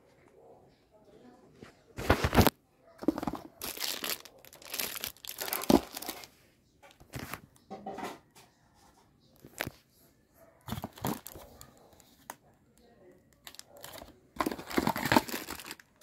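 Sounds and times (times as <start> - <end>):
packaging crinkling and rustling: 2.0 - 6.3, 10.7 - 11.7, 13.4 - 16.0.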